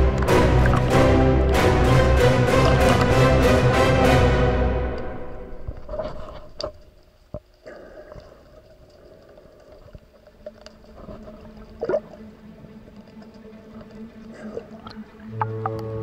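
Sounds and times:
underwater clicks and pops: 0.0s - 1.6s, 2.2s - 3.3s
muffled underwater movement: 0.0s - 3.5s, 5.6s - 16.0s.

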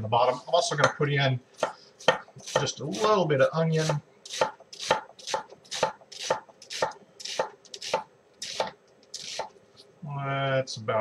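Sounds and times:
knife chopping on wooden board: 1.6s - 3.2s, 3.8s - 9.5s.

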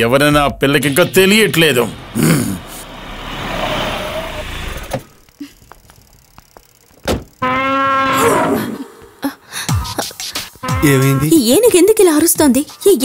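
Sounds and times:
car pulling up and stopping: 1.6s - 7.4s
small clicks: 5.0s - 7.4s
car door shutting: 7.0s - 7.4s.

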